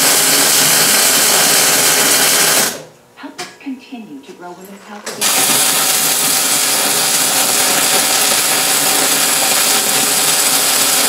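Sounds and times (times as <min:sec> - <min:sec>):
welding arc crackling: 0:00.0 - 0:02.9, 0:05.2 - 0:11.0.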